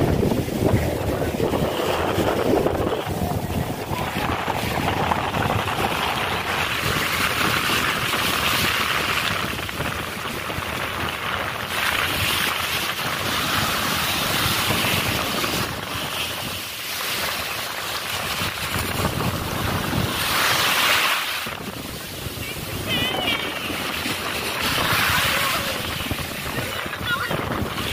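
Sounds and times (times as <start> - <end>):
small waves breaking on beach: 0.0 - 27.9
wind buffeting microphone: 0.0 - 27.9.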